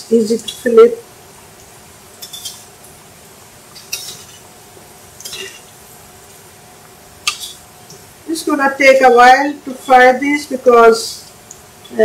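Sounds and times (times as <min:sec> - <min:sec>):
metal spatula clinking on a pan: 0:02.2 - 0:02.7.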